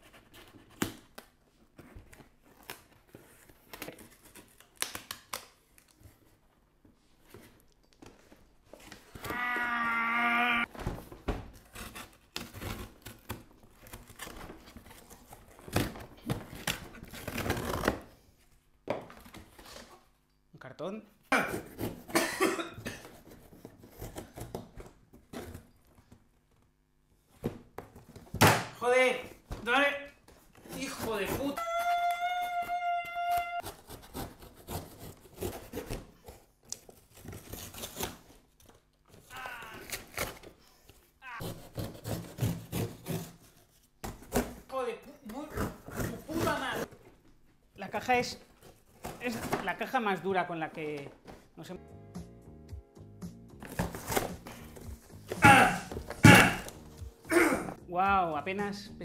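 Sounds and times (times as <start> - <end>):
high-pitched vocal cry: 9.3 - 10.7, 31.6 - 33.6, 39.3 - 39.9, 55.4 - 56.7
knife cutting cardboard: 11.5 - 18.1, 21.4 - 22.1, 30.6 - 31.8, 33.1 - 40.5, 41.3 - 44.6, 45.4 - 46.9.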